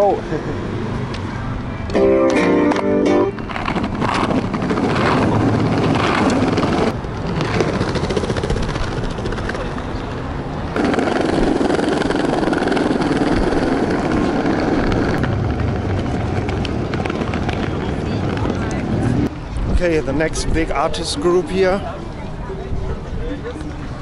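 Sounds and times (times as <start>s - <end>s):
skateboard wheels rumbling on stone: 3.3s - 19.3s.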